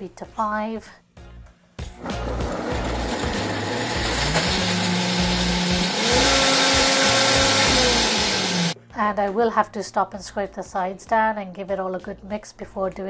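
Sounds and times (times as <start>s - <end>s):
blender motor chopping: 2.0s - 8.8s.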